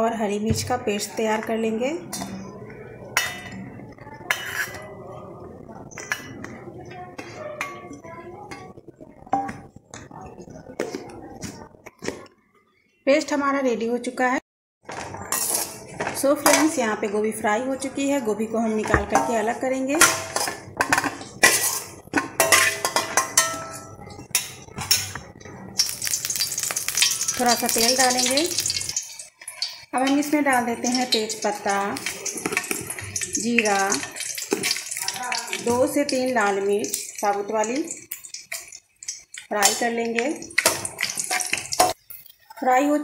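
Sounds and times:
metal spatula scraping a pan: 4.2s - 5.0s, 15.0s - 16.8s, 19.1s - 35.1s
metal plate clinking: 20.0s - 35.5s.

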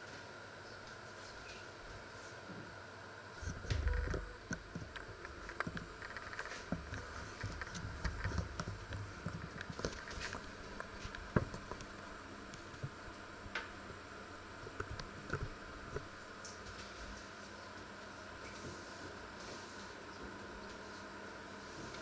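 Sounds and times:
low rumbles of movement: 3.5s - 12.0s.

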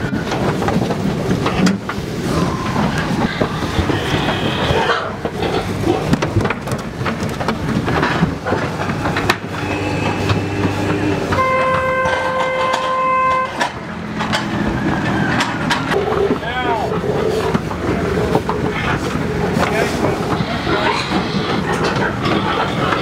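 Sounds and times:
low engine rumble: 0.0s - 23.0s
pigs squealing and grunting: 2.2s - 6.2s, 8.8s - 11.4s, 14.7s - 23.0s.

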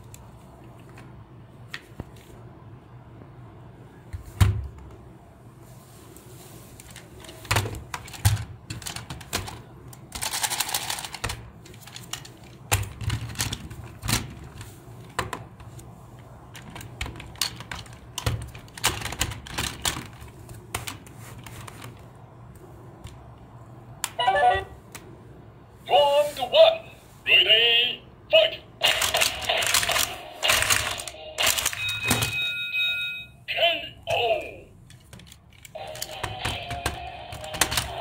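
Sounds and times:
plastic rattle: 6.9s - 14.7s.

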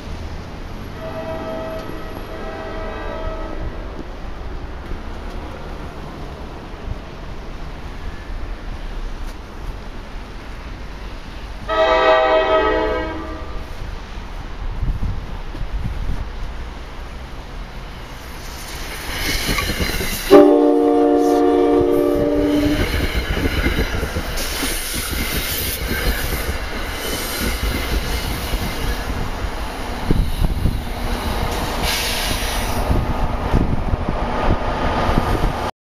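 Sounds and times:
rumble of passing train coaches: 0.0s - 35.7s
train horn blast: 1.0s - 3.9s, 11.7s - 13.6s, 20.3s - 22.9s.

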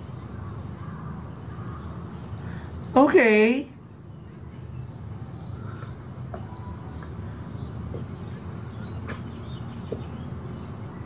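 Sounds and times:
faint chirps and clicks: 4.7s - 10.3s.

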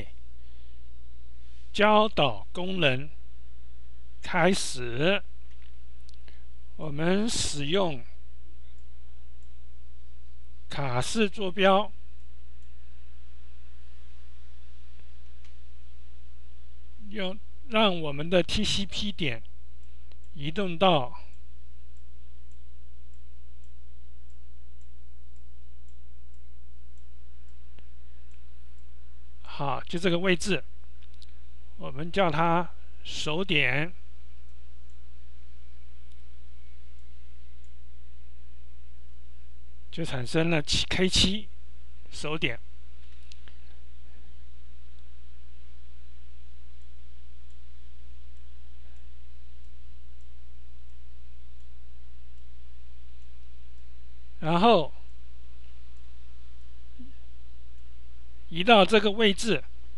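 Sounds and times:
low electrical hum: 0.0s - 59.9s
faint ticks: 21.1s - 29.0s, 30.8s - 31.5s.

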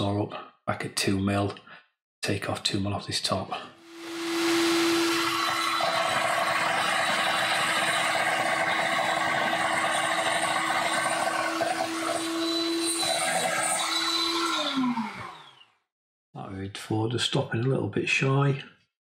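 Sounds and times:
table saw motor whine: 3.8s - 15.7s.

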